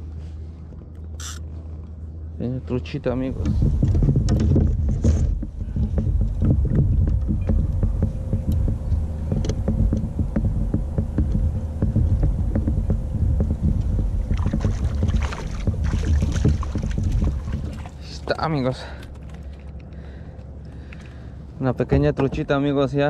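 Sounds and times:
wind buffeting microphone: 0:03.0 - 0:18.7
water splashing: 0:14.2 - 0:19.9
knocks in kayak: 0:14.4 - 0:18.0.

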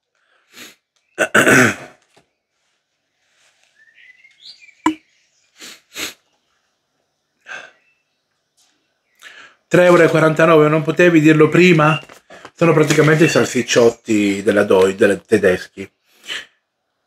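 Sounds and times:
person sniffing: 0:00.5 - 0:00.8, 0:05.6 - 0:06.3, 0:16.1 - 0:16.6.

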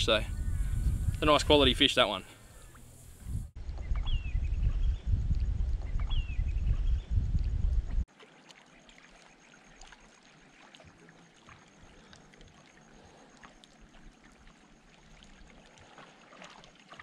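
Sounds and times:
water dripping and trickling: 0:07.3 - 0:17.0.

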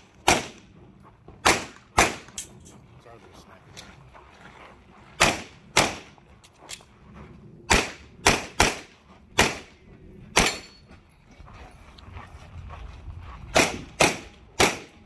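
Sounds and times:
handgun shots: 0:00.2 - 0:00.6, 0:01.4 - 0:02.5, 0:05.2 - 0:06.1, 0:07.7 - 0:09.7, 0:10.4 - 0:10.7, 0:13.6 - 0:15.0.

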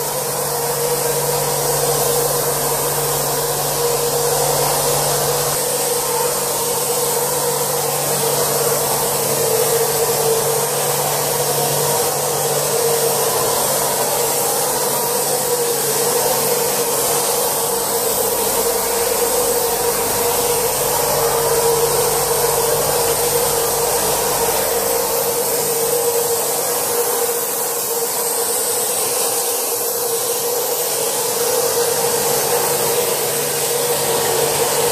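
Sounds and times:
machine hum: 0:00.0 - 0:34.9
spray gun air hiss: 0:00.0 - 0:34.9.

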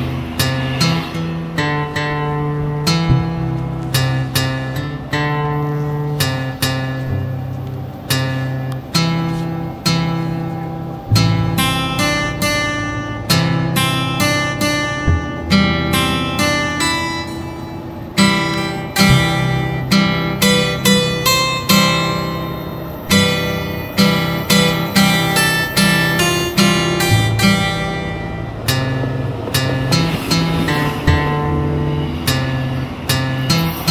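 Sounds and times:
acoustic guitar playing: 0:00.0 - 0:33.9.

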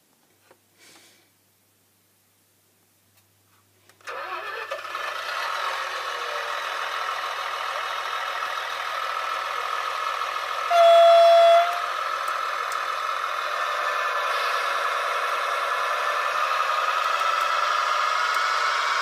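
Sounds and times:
model railcar engine sound: 0:03.9 - 0:19.0
horn blast: 0:10.7 - 0:11.8.

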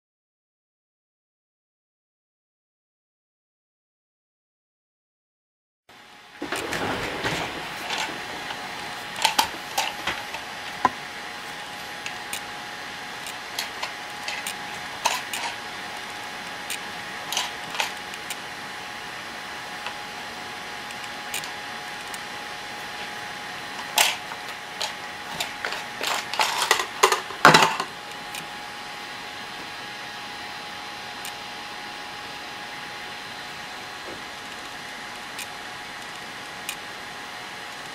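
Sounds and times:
faint steady hum: 0:05.9 - 0:37.9
plastic rustling: 0:06.4 - 0:18.5, 0:22.8 - 0:28.5.

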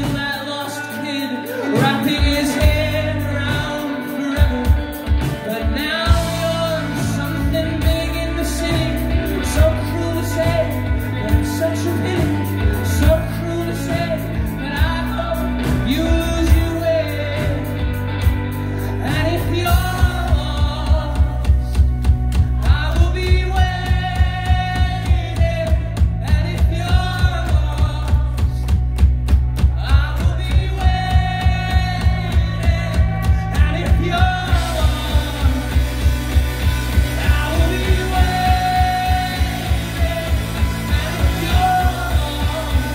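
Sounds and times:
man singing long notes: 0:00.0 - 0:18.0, 0:29.8 - 0:42.9
rock band playing: 0:00.0 - 0:42.9.

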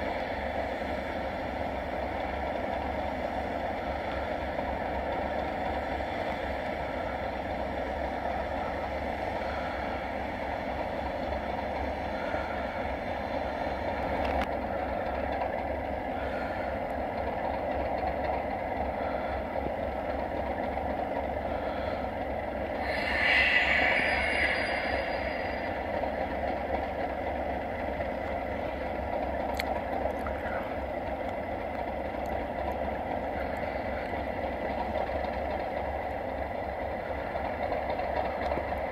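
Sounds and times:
diesel locomotives idling: 0:00.0 - 0:38.9
high-pitched noise: 0:22.8 - 0:27.2.

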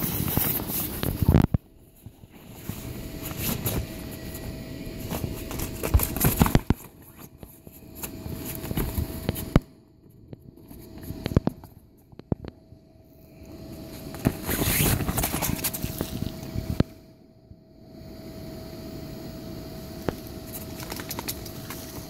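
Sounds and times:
air blower drone: 0:00.0 - 0:09.6
paws thumping on vinyl: 0:00.0 - 0:09.7.

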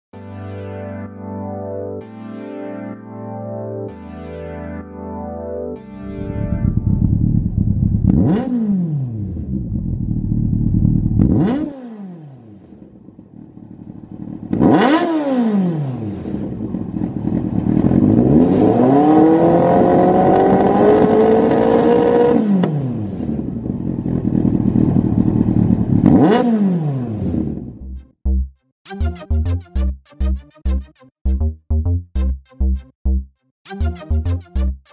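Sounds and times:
electronic music: 0:00.2 - 0:08.2, 0:27.8 - 0:34.9
motorcycle engine revving: 0:06.2 - 0:27.8.

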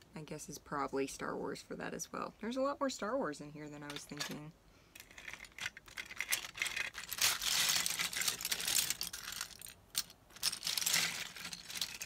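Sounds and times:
plastic bricks clattering: 0:05.0 - 0:12.0.

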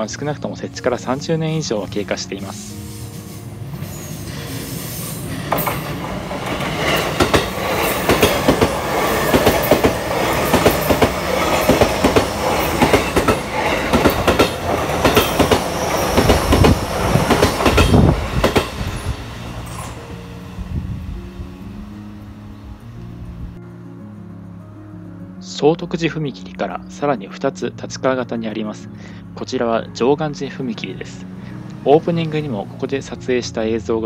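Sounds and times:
electric train passing: 0:00.0 - 0:34.0
train wheels clacking over rail joints: 0:05.2 - 0:19.0.

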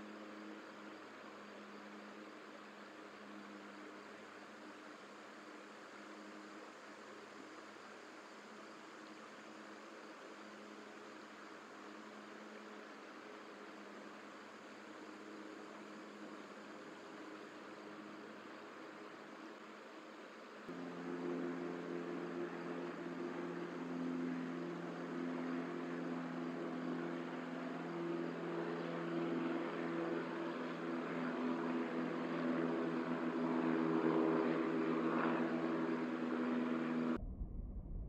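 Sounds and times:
engine drone: 0:20.7 - 0:38.0.

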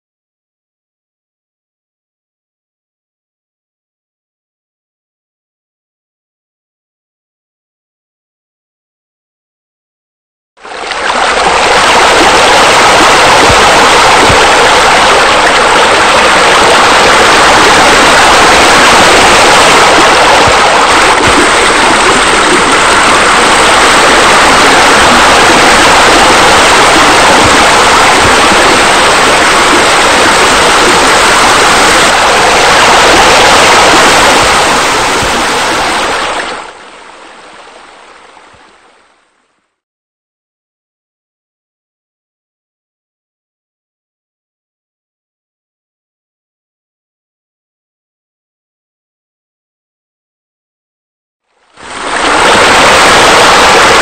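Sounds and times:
loud rush of falling water: 0:10.7 - 0:38.3, 0:51.8 - 0:54.0.

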